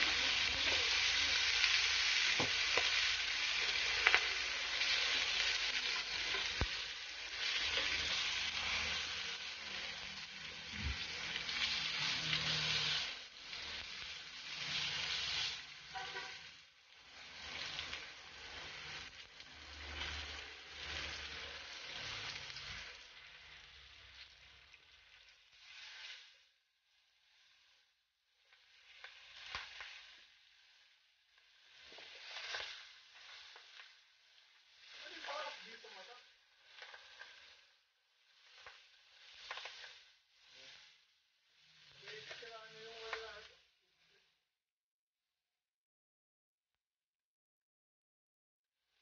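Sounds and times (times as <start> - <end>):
pork sizzling on grill pan: 0.0 - 44.5.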